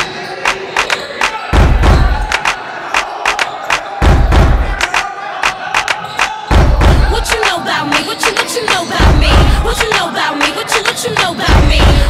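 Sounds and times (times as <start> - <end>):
loud low thud: 1.6 - 2.2, 4.0 - 4.7, 6.5 - 7.1.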